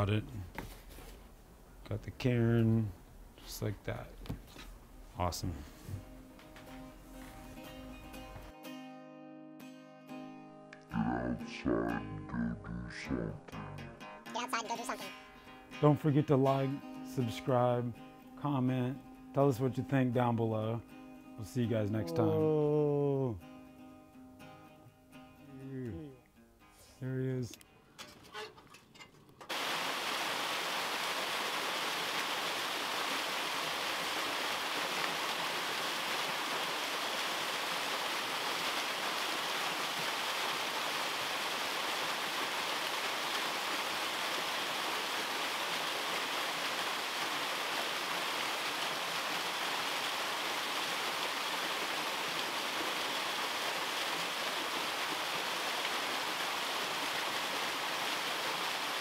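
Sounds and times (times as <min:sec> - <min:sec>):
waterfall splashing into pool: 0:29.5 - 0:59.0.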